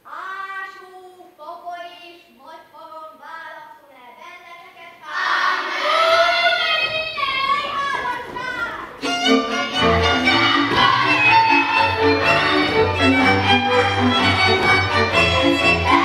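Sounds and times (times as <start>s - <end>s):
fiddle playing a dance tune: 9.0s - 16.0s
strings and bass with steady beat: 9.0s - 16.0s.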